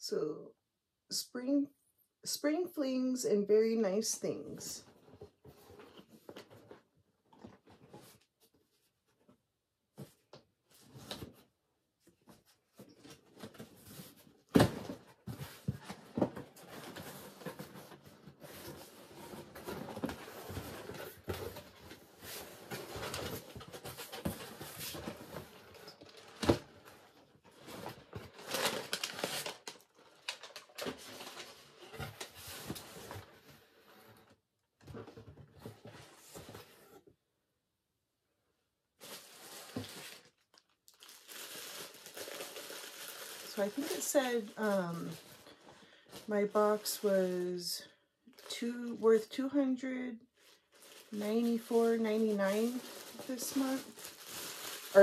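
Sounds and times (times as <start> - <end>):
packing rustling and crinkling: 12.3 - 34.3, 39.0 - 47.0, 50.4 - 55.0.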